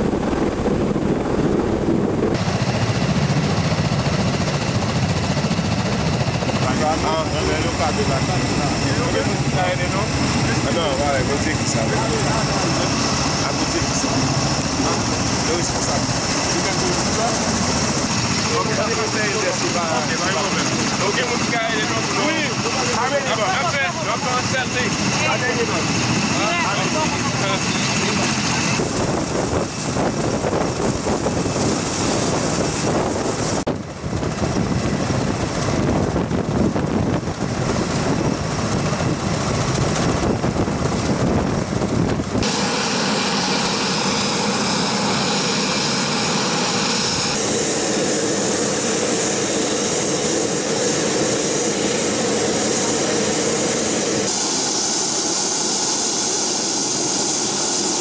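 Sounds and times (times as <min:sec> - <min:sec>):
aircraft engines and rotors running: 0:00.0 - 0:58.0.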